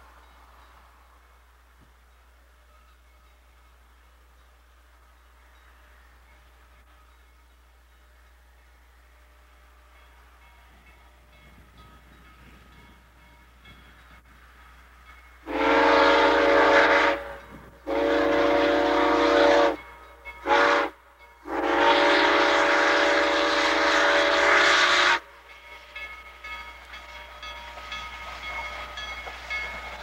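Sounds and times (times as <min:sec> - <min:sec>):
steam whistle blasts: 0:15.4 - 0:25.3.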